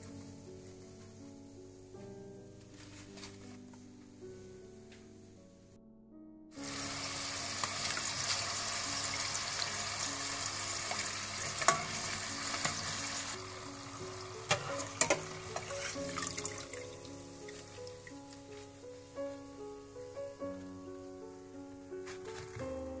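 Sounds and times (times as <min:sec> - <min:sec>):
food deep-frying in hot oil: 0:06.6 - 0:18.5.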